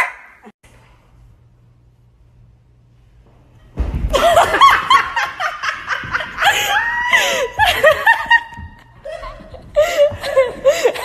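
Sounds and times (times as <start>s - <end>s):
people laughing hard: 4.2s - 11.0s.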